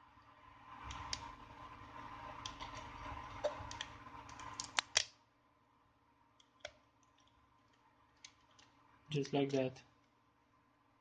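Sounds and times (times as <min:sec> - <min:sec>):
small plastic clicks: 0:02.4 - 0:05.2.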